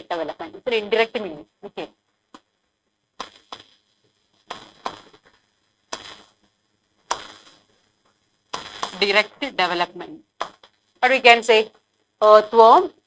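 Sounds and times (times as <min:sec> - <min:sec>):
stylus scratching on glass screen: 0:03.2 - 0:06.4, 0:07.1 - 0:12.8.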